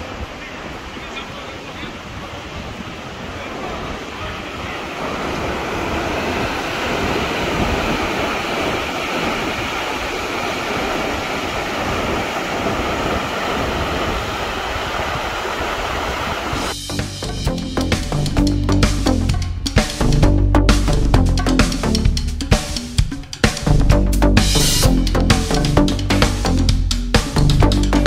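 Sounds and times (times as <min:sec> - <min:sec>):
wind buffeting microphone: 0:00.0 - 0:16.7.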